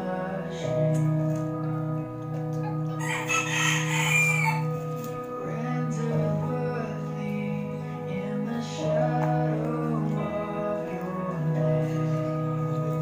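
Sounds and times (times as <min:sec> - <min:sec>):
background music sustained notes: 0:00.0 - 0:13.0
loud crowing call: 0:03.0 - 0:04.7.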